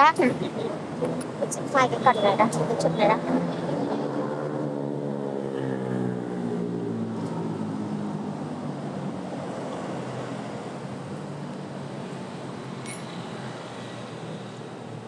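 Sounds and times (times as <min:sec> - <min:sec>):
vehicle engine humming: 0:00.0 - 0:09.0.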